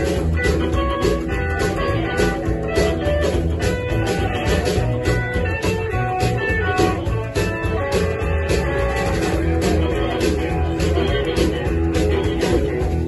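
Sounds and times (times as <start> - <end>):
electric guitar: 0.0 - 13.0
steady drum beat: 0.0 - 13.0
upright double bass plucked: 0.0 - 13.0
harmonica: 6.5 - 13.0.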